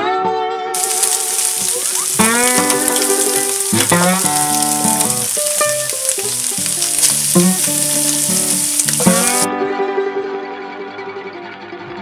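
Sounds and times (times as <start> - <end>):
meat sizzling on a pan: 0.8 - 9.5
plucked guitar music: 0.8 - 10.4.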